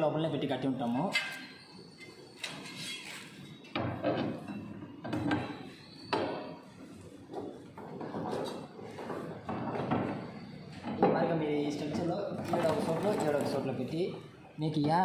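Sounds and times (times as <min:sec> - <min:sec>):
plastic drums scraping: 0:12.4 - 0:13.7.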